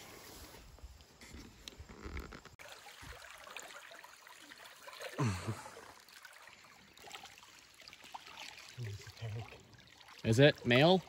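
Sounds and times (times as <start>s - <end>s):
river water trickling and lapping: 1.8s - 11.0s.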